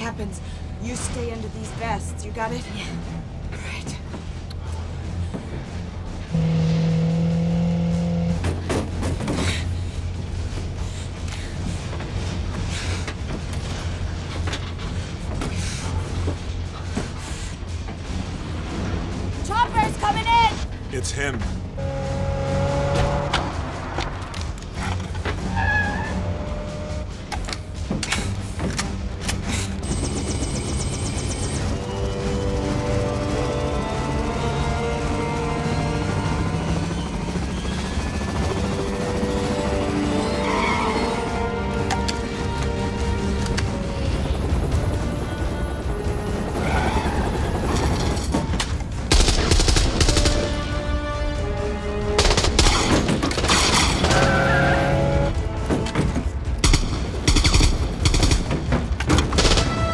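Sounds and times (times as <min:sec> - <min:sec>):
faint film music: 0:00.0 - 0:59.9
low rumble of vehicles: 0:00.0 - 0:59.9
van engine and road noise: 0:03.0 - 0:19.5, 0:20.8 - 0:29.9
helicopter: 0:26.8 - 0:40.4, 0:41.1 - 0:54.0.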